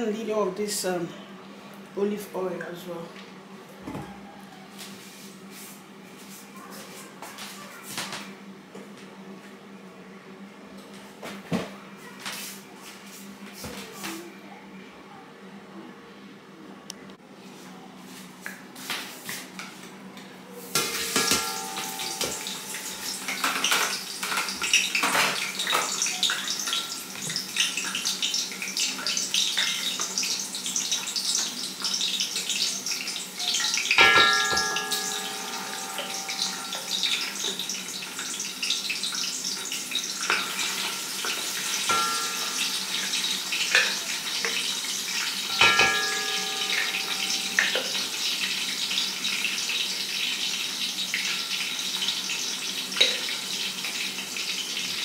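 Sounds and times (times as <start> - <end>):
oil sizzling and crackling in a pot: 20.7 - 55.0
utensil clinking against pot: 34.0 - 37.6, 40.2 - 44.6, 45.4 - 48.2.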